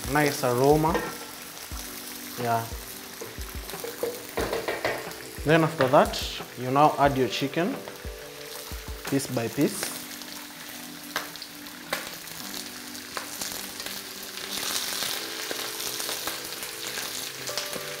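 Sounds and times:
chicken sizzling in hot oil: 0.0 - 18.0
pieces knocking in pan: 0.8 - 1.3, 3.2 - 6.6.

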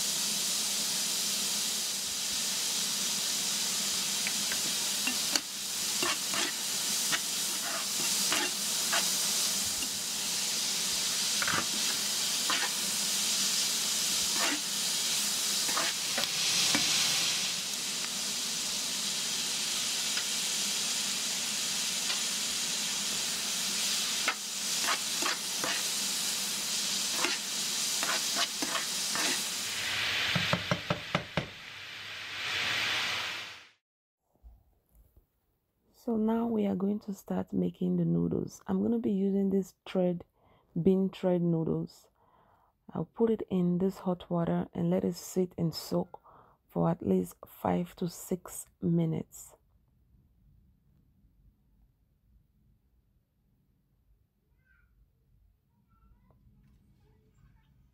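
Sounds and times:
food sizzling in frying pan: 0.0 - 33.8
metal spoon scraping pan: 4.6 - 9.2, 11.4 - 12.8, 14.3 - 14.7, 15.6 - 17.0, 24.2 - 25.9, 27.1 - 29.5.

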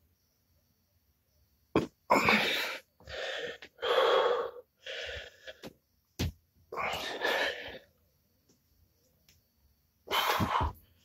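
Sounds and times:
man breathing hard: 2.2 - 5.7, 6.8 - 7.9, 10.1 - 11.0.

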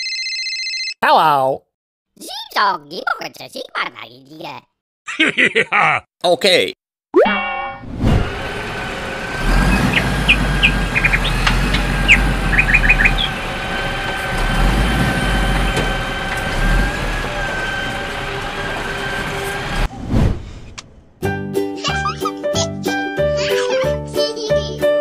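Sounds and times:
truck engine rumbling: 8.1 - 19.9.

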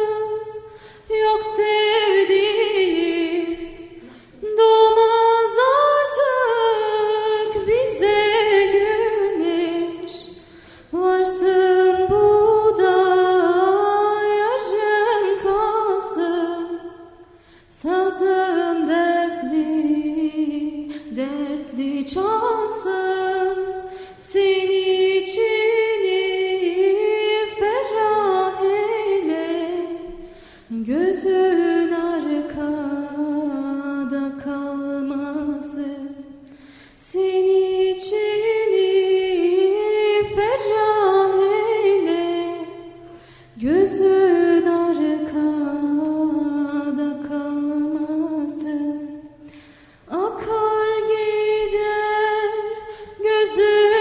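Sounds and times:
woman singing unaccompanied: 0.0 - 36.4, 37.0 - 49.5, 50.1 - 54.0.

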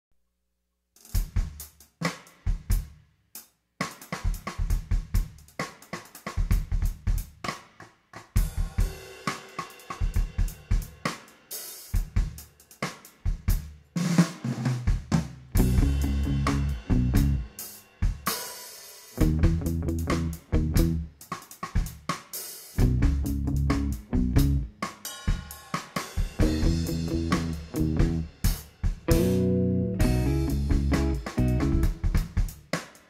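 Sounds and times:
drum kit playing: 1.0 - 33.0
bass line: 15.6 - 17.5, 19.2 - 21.1, 22.8 - 24.7, 26.4 - 28.4, 29.1 - 32.0
held pitched notes: 26.4 - 28.2, 29.1 - 31.9.

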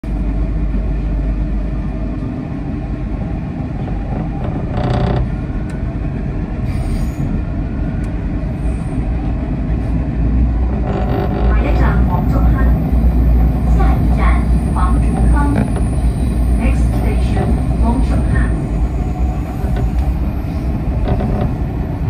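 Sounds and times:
train rumble: 0.0 - 22.0
train wheel squeal: 6.6 - 7.4.

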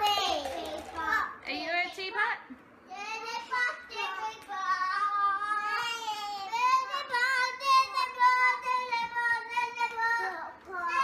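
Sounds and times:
toddler singing: 3.0 - 11.0.

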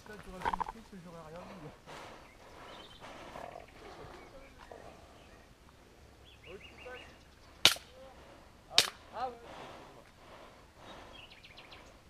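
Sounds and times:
birds chirping faintly: 0.0 - 12.0
airsoft gun shots: 7.6 - 7.9.

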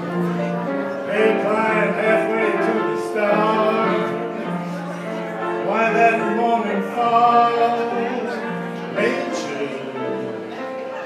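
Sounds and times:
piano accompaniment: 0.0 - 11.0
man singing: 1.0 - 10.5.

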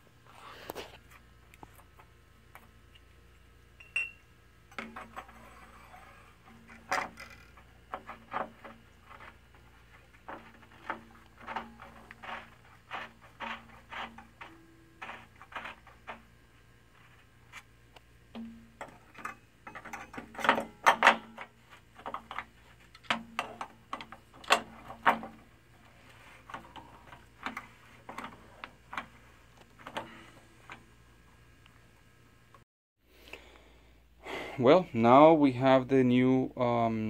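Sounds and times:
metal clatter: 4.7 - 16.4, 18.3 - 30.9.

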